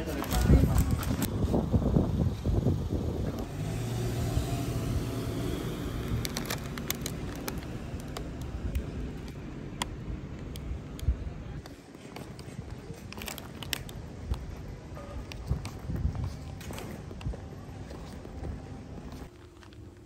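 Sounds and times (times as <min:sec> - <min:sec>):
vehicle engine passing: 0:03.4 - 0:09.6.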